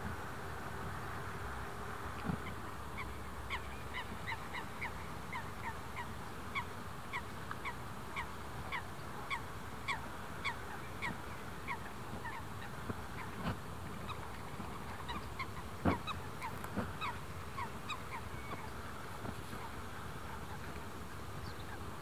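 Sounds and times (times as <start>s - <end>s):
low background noise: 0.0s - 22.0s
bird calling: 2.4s - 13.4s, 14.0s - 18.9s.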